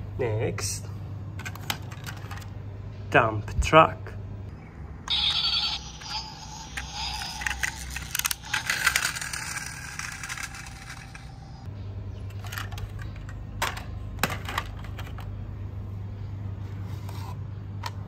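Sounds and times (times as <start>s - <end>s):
toy wheels rattling over stone: 5.1s - 11.4s
toy vehicles knocking together: 6.7s - 11.3s.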